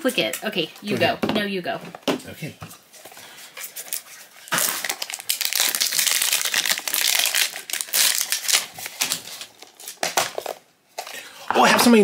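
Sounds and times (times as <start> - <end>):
foil wrapper crinkling: 3.4 - 11.1.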